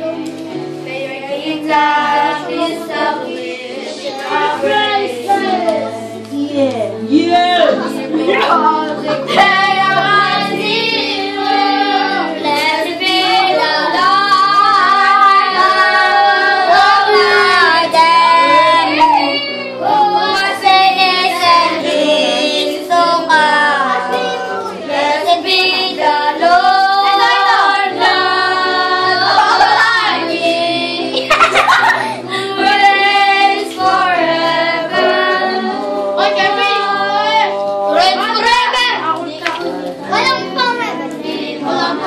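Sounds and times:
instrumental backing: 0.0 - 42.0
song with singing voice: 0.0 - 42.0.

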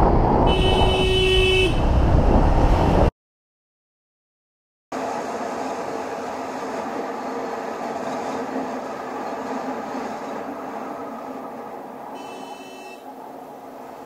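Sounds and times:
road and wind noise: 0.0 - 3.1, 4.9 - 14.0.

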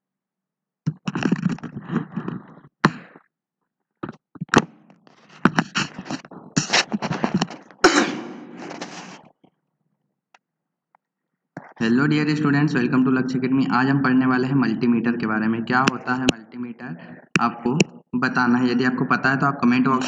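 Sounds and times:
scraping noises: 4.0 - 9.4.

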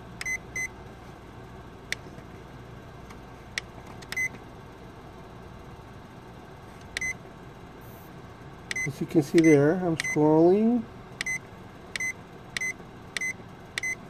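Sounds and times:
low steady hum: 0.0 - 14.0
short high key beeps: 8.7 - 10.2, 11.2 - 11.4, 12.0 - 14.0.

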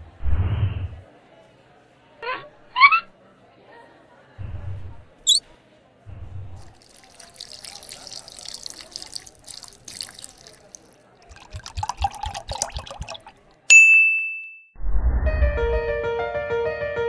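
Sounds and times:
bright ringing ding: 13.7 - 14.8.

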